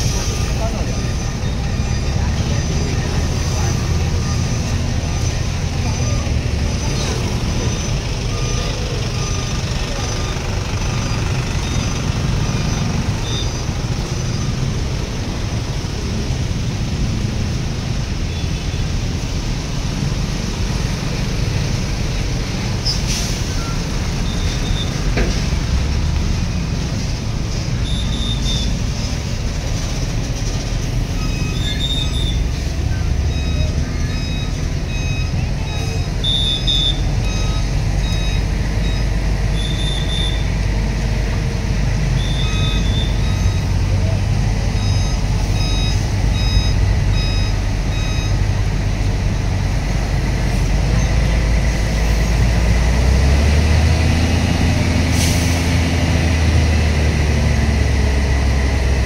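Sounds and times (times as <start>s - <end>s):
heavy vehicle engine rumbling: 0.0s - 59.0s
reversing alarm beeps: 7.7s - 10.4s, 31.1s - 40.5s, 42.1s - 44.0s, 44.6s - 48.5s.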